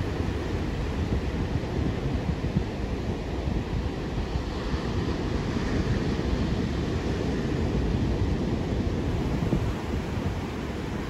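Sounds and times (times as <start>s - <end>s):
wind buffeting microphone: 0.0s - 11.0s
ocean surf breaking: 4.4s - 11.0s.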